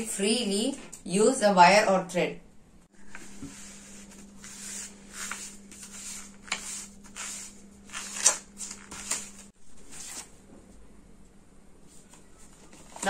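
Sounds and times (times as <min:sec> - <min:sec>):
paper and cardboard rustling: 0:03.1 - 0:10.4, 0:12.0 - 0:13.0.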